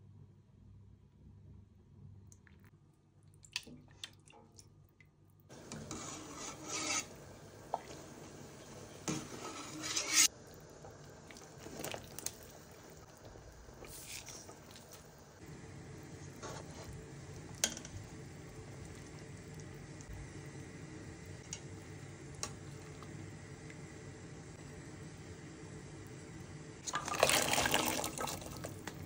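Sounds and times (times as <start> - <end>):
metal skimmer scraping pot: 5.6 - 10.3
utensils clinking in pot: 9.0 - 10.3.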